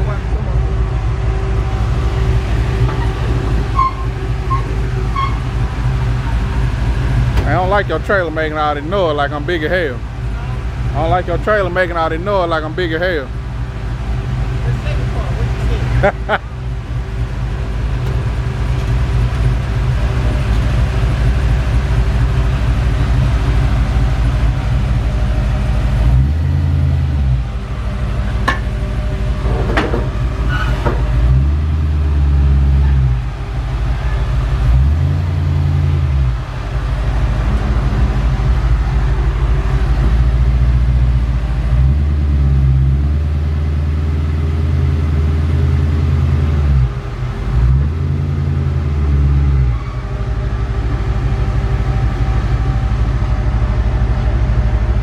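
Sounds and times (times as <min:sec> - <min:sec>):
vehicle engine rumbling: 0:00.0 - 0:55.0
sharp metal clanks: 0:28.3 - 0:28.8.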